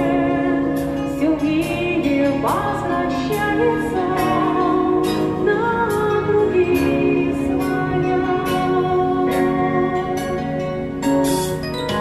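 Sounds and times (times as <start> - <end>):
woman singing into microphone: 0.0 - 10.9
instrumental backing music: 0.0 - 12.0.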